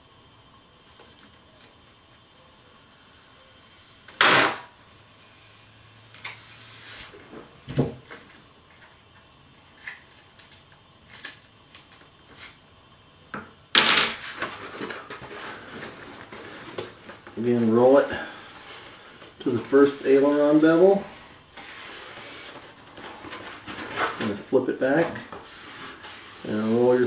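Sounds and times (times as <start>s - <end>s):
foam wing rustling and crinkling: 14.2s - 27.0s
tape scraping: 18.4s - 24.4s, 25.0s - 27.0s.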